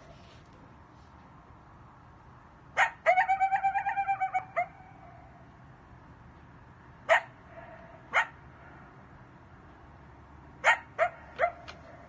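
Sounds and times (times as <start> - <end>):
coyotes yipping and howling: 2.8 - 5.5, 7.1 - 9.0, 10.6 - 12.0.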